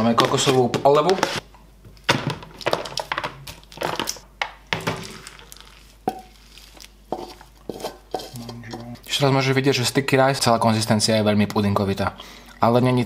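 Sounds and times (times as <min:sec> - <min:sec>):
plastic crinkling: 0:02.0 - 0:08.5
rice scraped out of a pot: 0:06.3 - 0:08.8.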